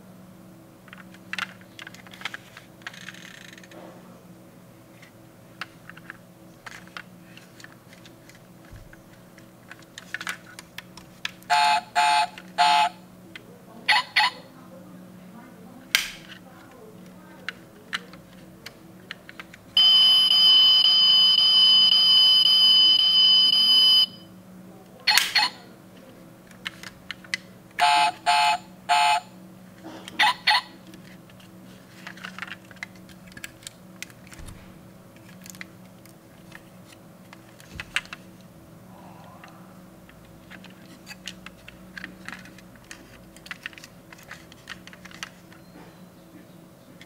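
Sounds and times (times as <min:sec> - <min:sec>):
toy buzzing tone: 0:11.5 - 0:13.0, 0:19.8 - 0:24.2, 0:27.8 - 0:29.3
short electronic beeps: 0:19.8 - 0:24.3.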